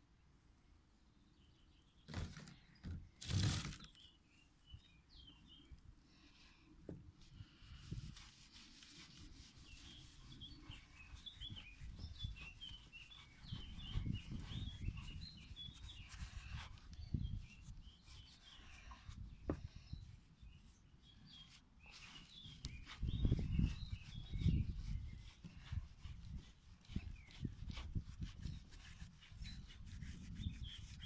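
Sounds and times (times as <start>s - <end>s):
small birds chirping: 1.0s - 6.7s, 7.4s - 31.0s
cloth rubbing on chrome: 7.7s - 16.9s.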